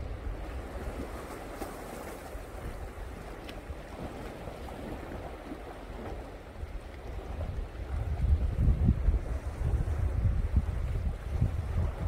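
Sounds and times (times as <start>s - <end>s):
low wind rumble on microphone: 0.0s - 12.0s
sea waves splashing on rocks: 0.6s - 7.1s.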